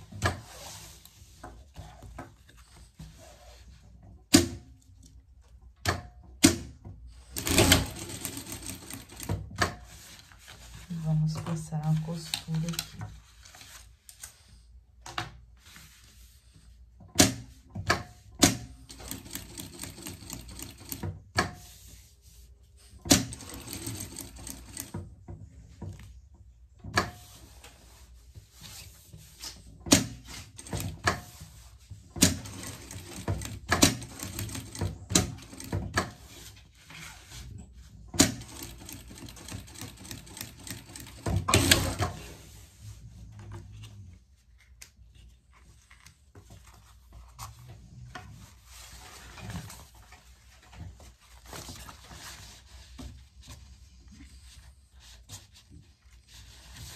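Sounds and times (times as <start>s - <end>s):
sewing machine stitching: 7.3s - 9.5s, 18.8s - 21.2s, 23.1s - 25.0s, 30.4s - 31.1s, 32.2s - 36.2s, 38.2s - 42.2s.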